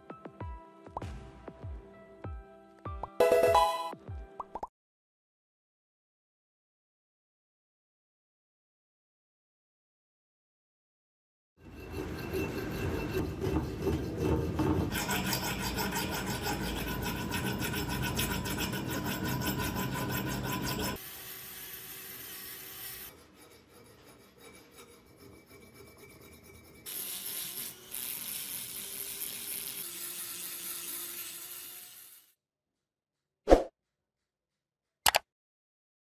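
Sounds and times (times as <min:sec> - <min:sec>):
rotary tool grinding steel: 0:11.6 - 0:32.4.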